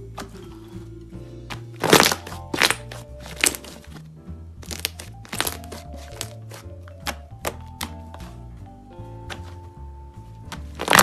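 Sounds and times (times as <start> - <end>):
light background music: 0.0 - 11.0
slime crackling pops: 1.5 - 3.8, 4.6 - 8.0, 10.8 - 11.0.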